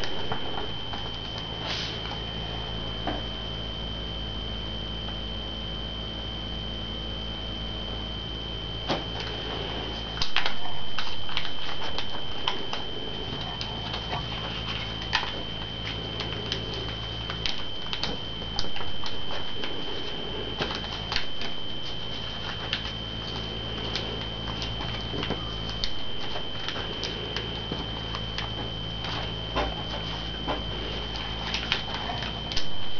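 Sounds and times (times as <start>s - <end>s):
low hum: 0.0s - 32.9s
steady high whine: 0.0s - 32.9s
paper being folded: 9.2s - 32.9s.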